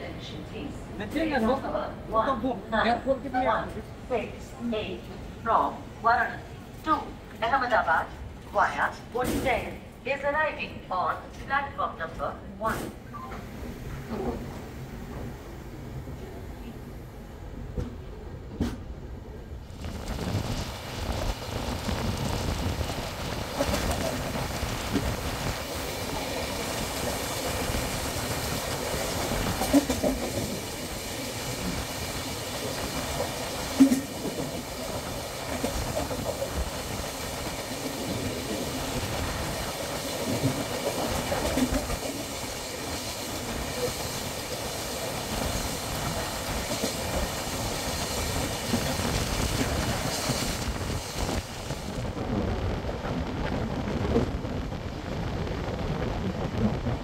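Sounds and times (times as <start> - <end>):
train wheels rumbling on track: 11.8 - 57.0.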